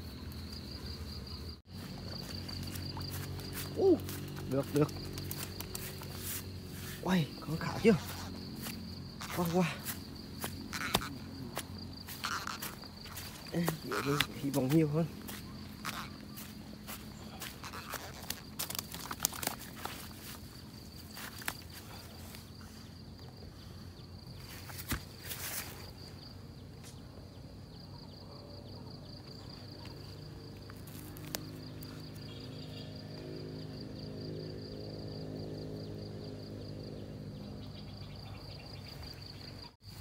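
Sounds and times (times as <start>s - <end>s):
high insect trill: 0.0s - 40.0s
fish flopping on grass: 15.2s - 20.4s.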